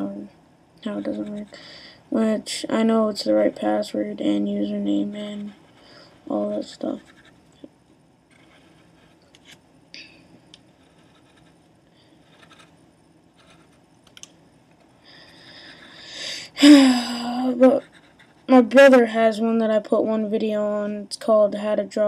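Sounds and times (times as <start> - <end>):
pencil scratching on paper: 0.9 - 1.6, 4.7 - 7.4, 8.3 - 9.2, 10.7 - 12.7, 13.4 - 13.8, 15.2 - 16.0, 17.5 - 18.9.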